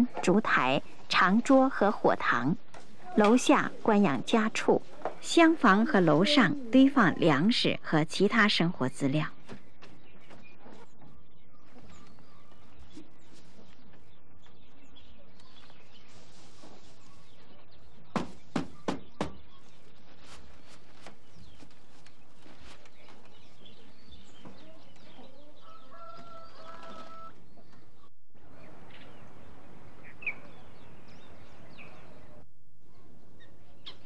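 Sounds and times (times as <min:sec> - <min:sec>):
sharp knocks: 0:18.1 - 0:19.5
chickens clucking: 0:24.4 - 0:28.1.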